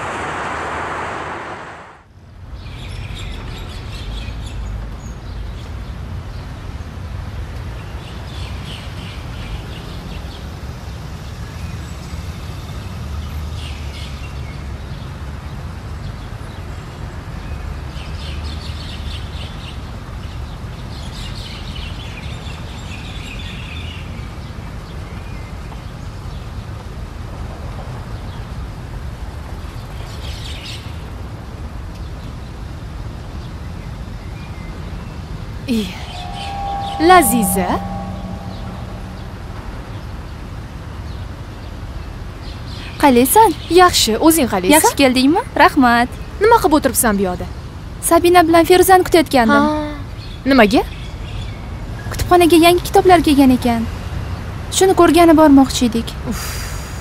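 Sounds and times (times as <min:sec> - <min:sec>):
steady low rumble: 0:00.0 - 0:02.0, 0:35.7 - 0:40.7.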